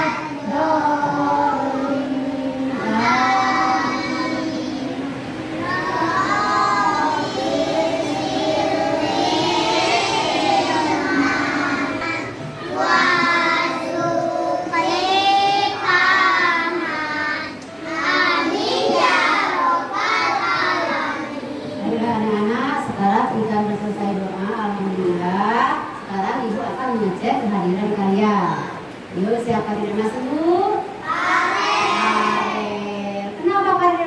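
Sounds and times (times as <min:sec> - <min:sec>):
children singing in unison: 0:00.0 - 0:21.9, 0:31.0 - 0:32.9.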